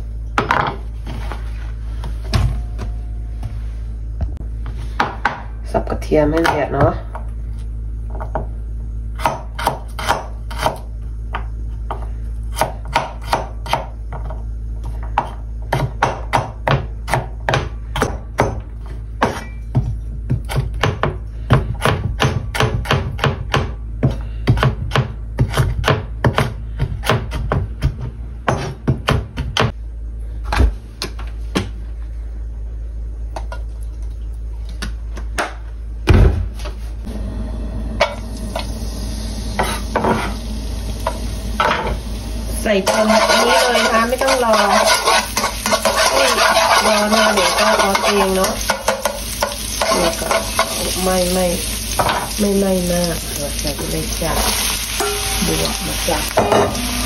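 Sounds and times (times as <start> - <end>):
steady low hum: 0.0 - 57.0
knife chopping on wooden board: 9.2 - 10.8, 19.2 - 29.7.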